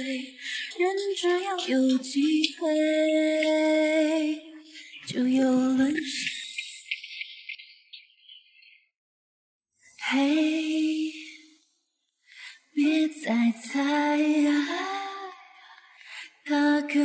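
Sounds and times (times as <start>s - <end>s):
woman singing slow song: 0.0s - 6.8s, 10.0s - 11.6s, 12.7s - 17.0s.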